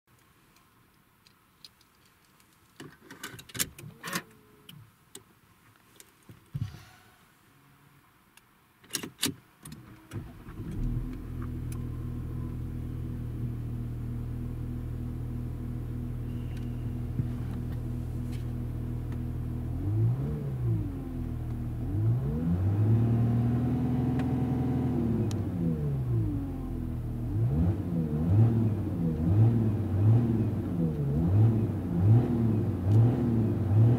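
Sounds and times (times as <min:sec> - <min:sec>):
engine revving: 0:19.7 - 0:21.2, 0:21.8 - 0:26.5, 0:27.2 - 0:33.9.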